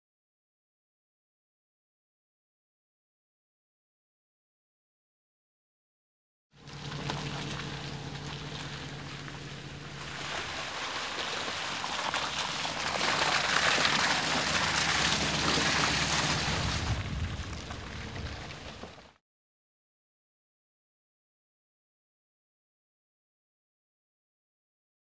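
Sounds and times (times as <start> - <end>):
car hum: 6.6 - 19.1
tyre noise on muddy track: 6.6 - 19.2.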